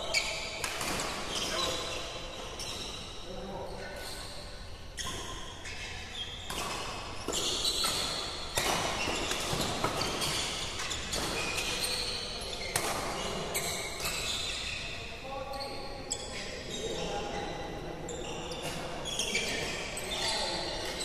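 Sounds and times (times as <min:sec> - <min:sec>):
sneakers squeaking on court: 0:00.0 - 0:17.0, 0:18.1 - 0:21.0
racket hitting shuttlecock: 0:00.6 - 0:01.5, 0:06.5 - 0:13.2.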